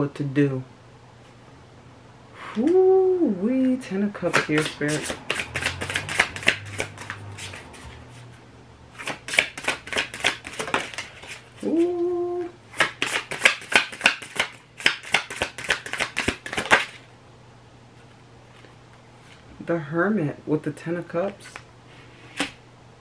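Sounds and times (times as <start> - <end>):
cards being riffle shuffled: 4.3 - 8.2, 9.0 - 12.0, 12.7 - 17.0.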